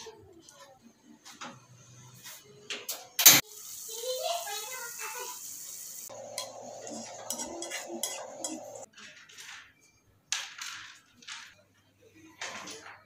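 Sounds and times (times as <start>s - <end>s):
spatula scraping a wok: 6.1s - 8.9s.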